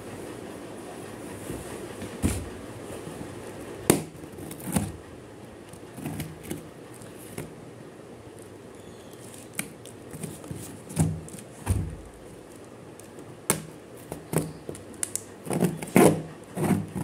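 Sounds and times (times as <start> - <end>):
pen knocking and scraping cardboard: 15.5 - 17.0.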